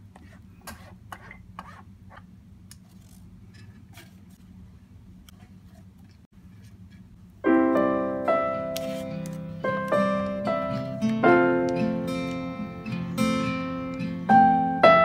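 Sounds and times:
loud piano music: 7.4s - 15.0s.

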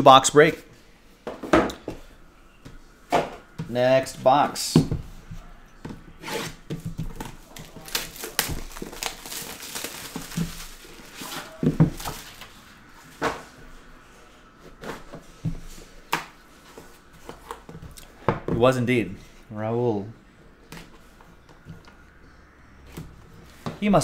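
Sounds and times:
plastic wrap crinkling: 7.3s - 12.6s.

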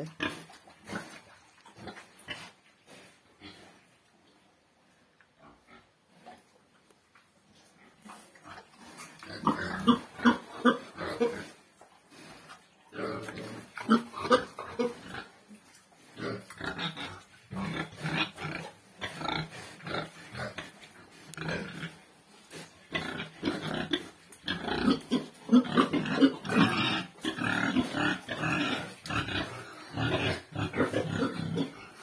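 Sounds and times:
pigs grunting: 7.9s - 15.4s, 16.0s - 32.0s.

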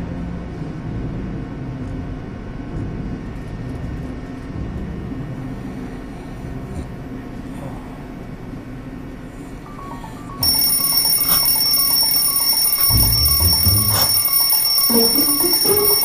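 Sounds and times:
elevator low rumble: 0.0s - 16.0s.

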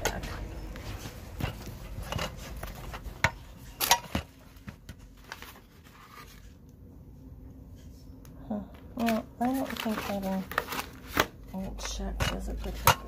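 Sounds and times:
paper rustling: 0.8s - 6.6s, 9.0s - 12.0s.

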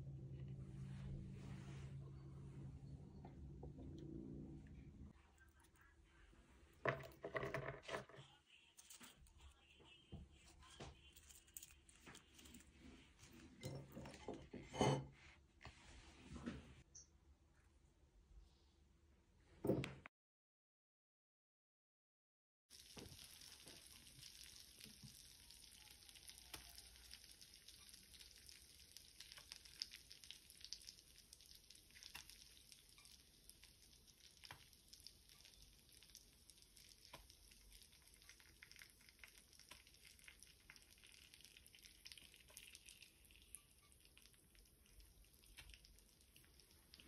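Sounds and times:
butter sizzling in a pan: 22.7s - 47.0s.

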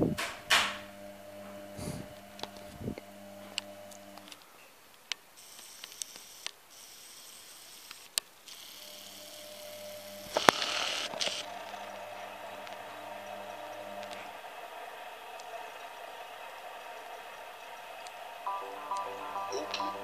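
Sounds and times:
low steady hum: 0.0s - 4.3s.

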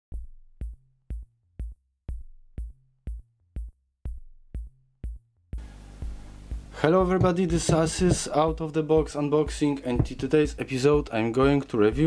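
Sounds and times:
drum machine kick: 0.1s - 12.0s
high hiss: 5.6s - 8.4s
bass line: 5.6s - 11.0s.

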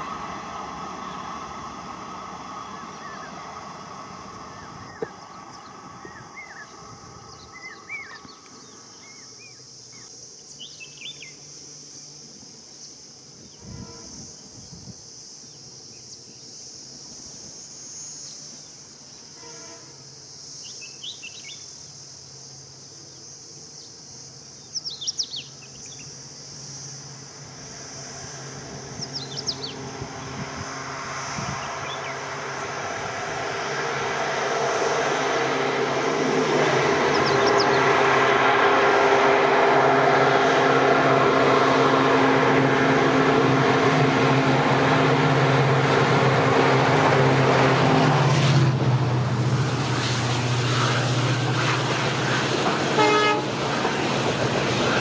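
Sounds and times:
train rumbling: 0.0s - 9.4s, 27.0s - 55.0s
insects buzzing: 0.0s - 55.0s.

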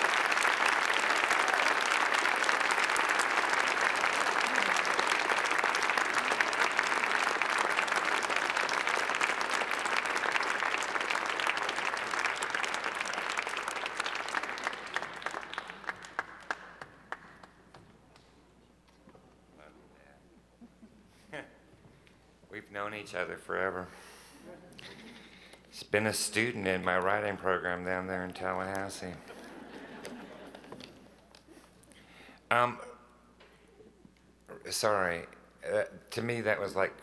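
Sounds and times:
large audience applauding: 0.0s - 17.6s.

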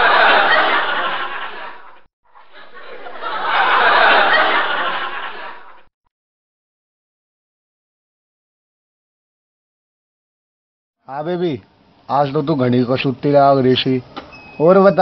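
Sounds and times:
canned laughter: 0.0s - 5.9s.

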